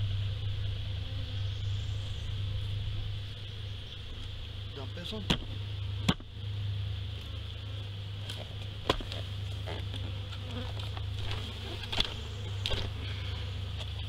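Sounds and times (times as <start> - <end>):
honey bees buzzing: 0.0 - 14.0
knocks on wooden hive boxes: 5.2 - 6.3, 8.8 - 9.2.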